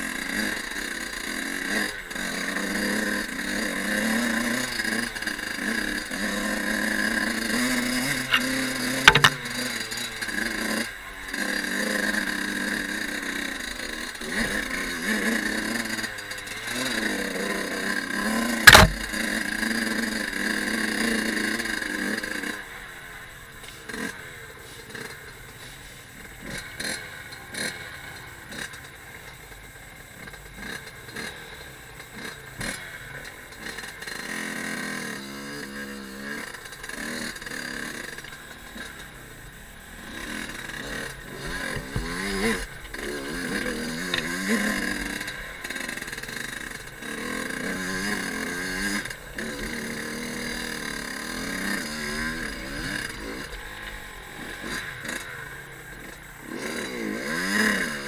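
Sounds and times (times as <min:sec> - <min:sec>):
two-stroke engine running: 0:00.0 - 0:58.0
motorbike knocks and rattles: 0:08.2 - 0:09.6, 0:18.6 - 0:19.3.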